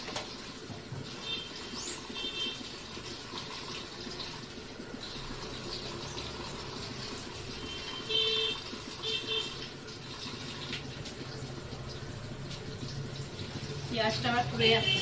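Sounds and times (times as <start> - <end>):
tap water running into sink: 0.0 - 15.0.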